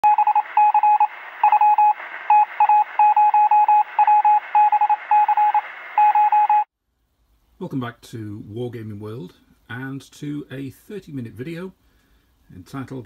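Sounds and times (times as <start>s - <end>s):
morse code beeps: 0.0s - 6.7s
radio static hiss: 0.1s - 6.7s.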